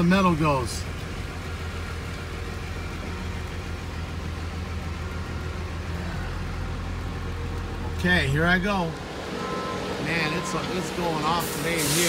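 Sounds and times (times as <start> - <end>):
truck engine running: 0.0 - 12.0.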